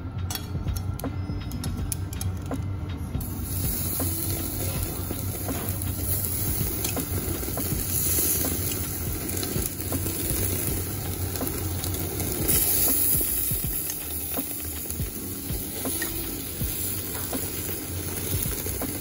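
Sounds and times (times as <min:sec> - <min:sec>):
steady low hum: 0:00.0 - 0:19.0
metal tongs clicking: 0:00.3 - 0:02.6
meat sizzling on a grill: 0:03.2 - 0:19.0.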